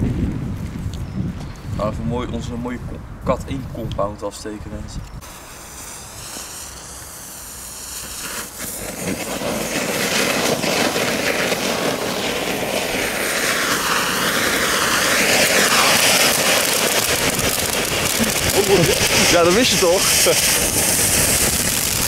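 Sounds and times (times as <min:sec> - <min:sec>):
firework fountains hissing: 0:05.2 - 0:22.0.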